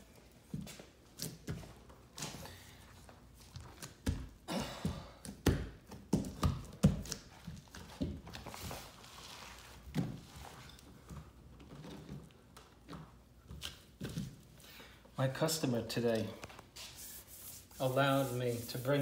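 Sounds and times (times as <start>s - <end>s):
paper rustling or scraping: 16.7s - 19.0s.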